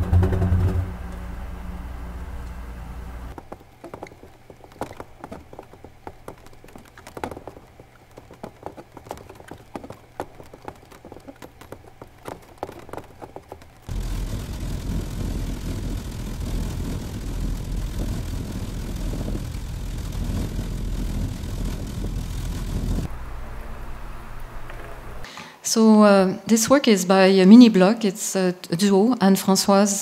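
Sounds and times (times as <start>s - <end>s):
loud steady rushing rumble: 13.9s - 23.6s.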